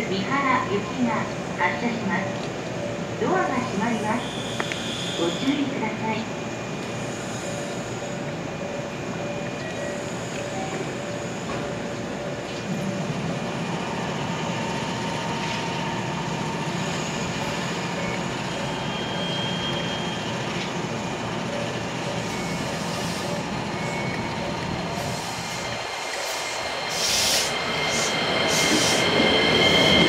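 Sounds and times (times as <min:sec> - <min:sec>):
electric train equipment running: 0:06.6 - 0:30.0
train pulling away: 0:06.7 - 0:30.0.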